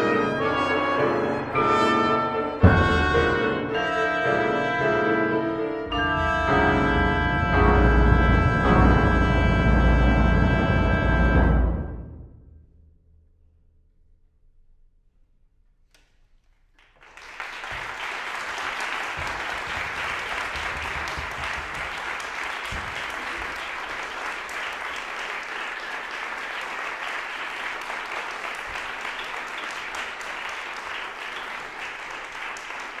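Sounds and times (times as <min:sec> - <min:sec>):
audience applauding: 0:16.7 - 0:33.0.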